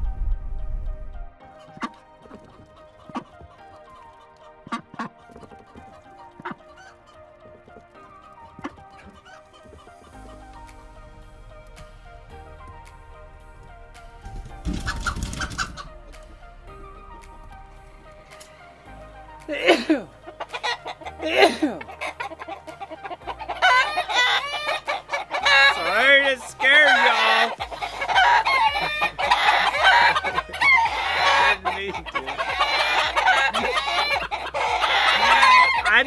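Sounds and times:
chickens clucking: 1.6 - 11.0, 13.6 - 36.0
rooster crowing: 26.8 - 35.9.

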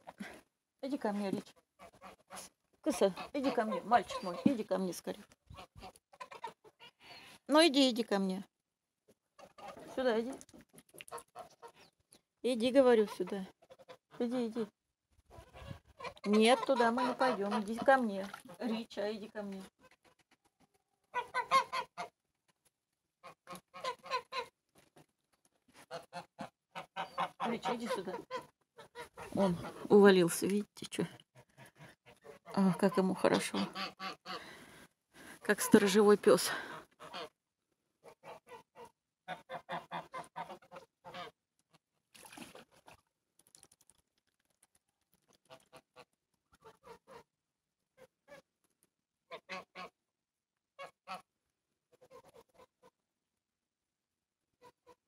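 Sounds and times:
geese honking: 15.4 - 18.0, 21.1 - 22.1, 25.9 - 29.9.

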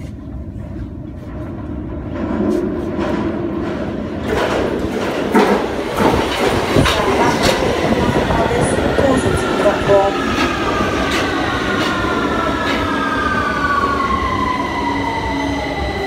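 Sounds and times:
train rumbling: 0.0 - 16.0
wheels clattering over rails: 0.4 - 13.0.

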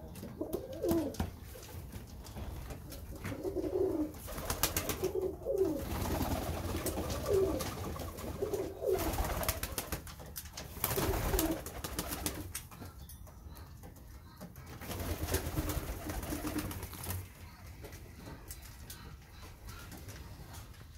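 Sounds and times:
pigeons cooing: 0.0 - 10.0, 10.7 - 12.6, 14.8 - 20.9
wings flapping: 0.4 - 12.7, 14.6 - 18.9.

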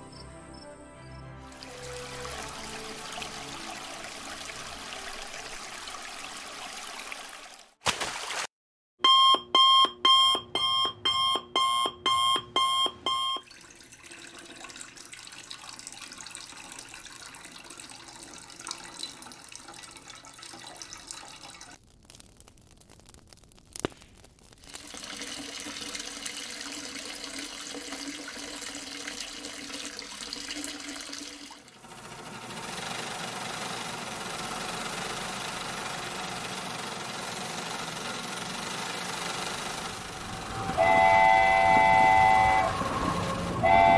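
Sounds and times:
low hum: 39.8 - 43.9
electronic beeping: 40.5 - 42.8.

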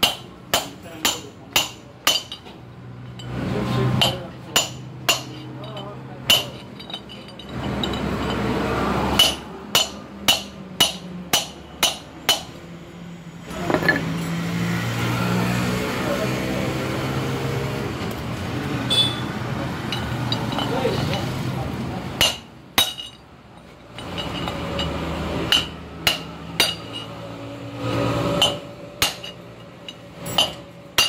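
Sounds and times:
hammer striking steel drift: 9.1 - 12.6, 23.9 - 27.2, 28.4 - 31.0.

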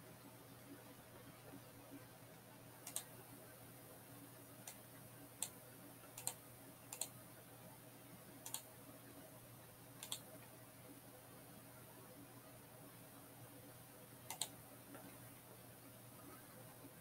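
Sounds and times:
faint steady hum: 0.0 - 17.0
computer mouse clicks: 2.8 - 3.2, 4.6 - 4.8, 5.4 - 7.2, 8.4 - 8.7, 10.0 - 10.3, 14.3 - 15.1.

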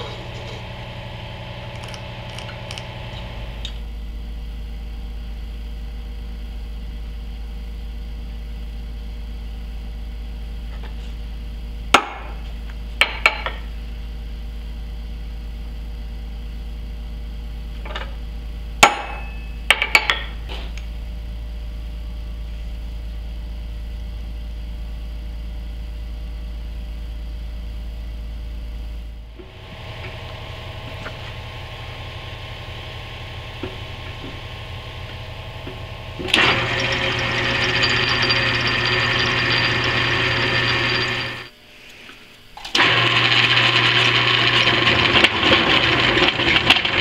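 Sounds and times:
hammer striking a center punch: 18.8 - 20.4.

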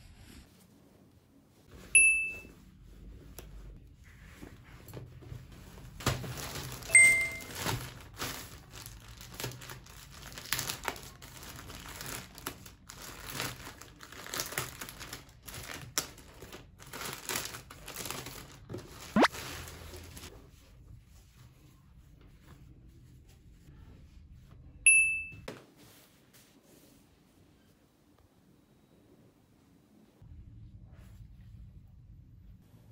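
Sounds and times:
plastic mailer bag crinkling: 6.0 - 20.3
short loud beep: 6.9 - 7.5.

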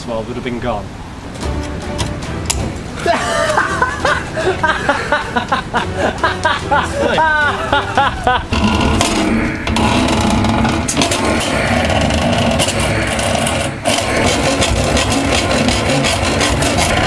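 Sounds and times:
handsaw sawing plastic: 8.5 - 17.0.

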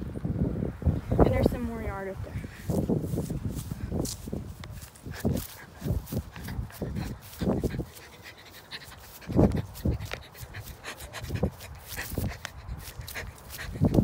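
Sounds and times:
footsteps on grass: 2.3 - 14.0
dog panting: 5.0 - 14.0.

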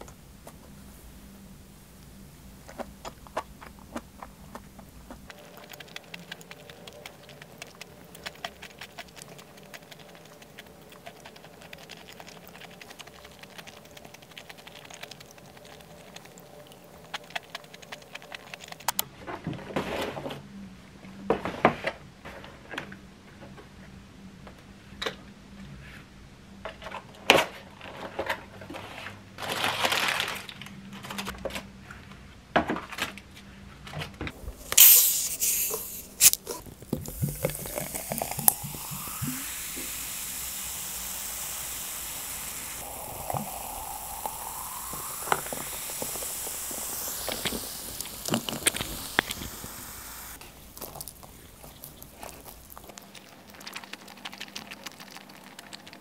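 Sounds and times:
soda pouring and fizzing: 4.8 - 18.9, 34.4 - 56.0.

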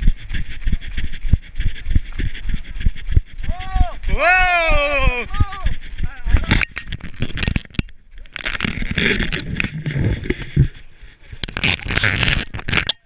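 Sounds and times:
running footsteps on snow: 0.0 - 6.5
wind noise: 0.0 - 12.9
microphone rubbing: 0.0 - 13.0.

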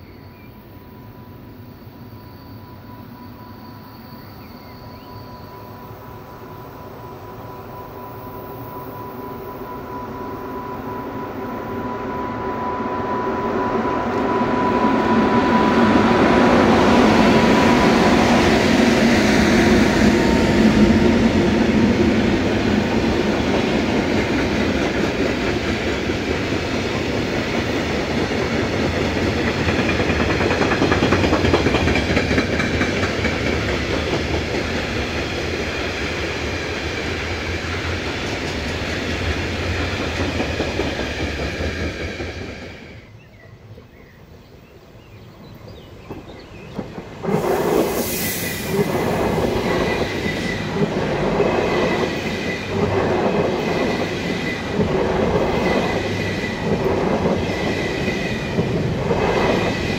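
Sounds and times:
freight train wheels clattering: 15.2 - 42.9.

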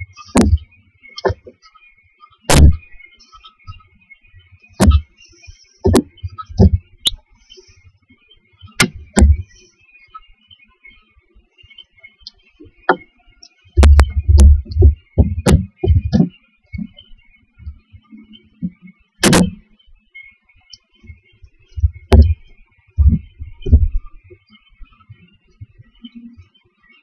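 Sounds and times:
thumps and knocks on wooden box: 0.3 - 1.6, 2.5 - 2.9, 4.8 - 5.0, 5.8 - 6.8, 8.8 - 9.5, 13.8 - 17.0, 18.6 - 19.6, 21.8 - 24.3.

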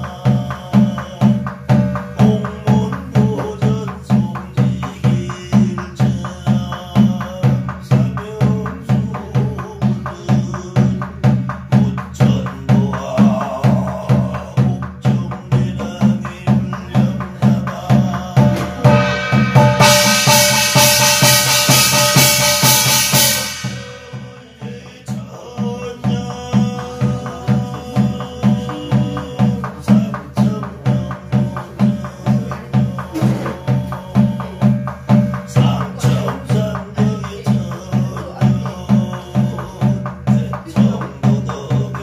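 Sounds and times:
barrel drum beating: 0.0 - 42.0
scripture chanting: 0.0 - 42.0
brass gong ringing: 18.8 - 24.5.

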